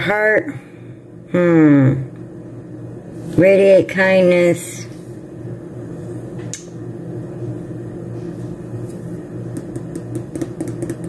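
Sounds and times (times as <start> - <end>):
appliance humming: 0.0 - 11.0
paper clicks and taps: 9.6 - 11.0.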